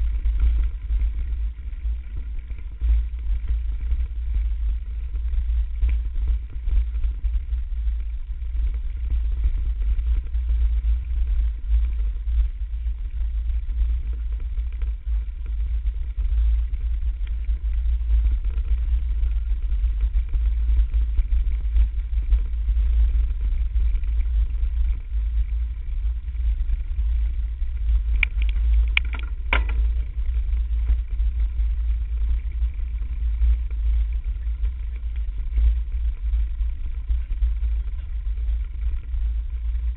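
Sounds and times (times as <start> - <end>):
trail vibration rumble: 0.0 - 39.9
wind buffeting microphone: 0.0 - 39.9
sharp clicks and rattles: 13.9 - 39.9.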